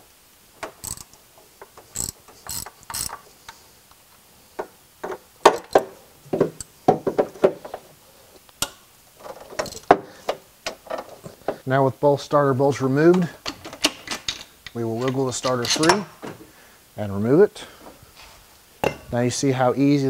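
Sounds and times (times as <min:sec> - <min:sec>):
hand ratchet clicking: 0:00.6 - 0:01.2, 0:01.8 - 0:03.2
metal clinks of socket and bolts: 0:00.8 - 0:01.2, 0:01.9 - 0:03.2, 0:09.6 - 0:10.0.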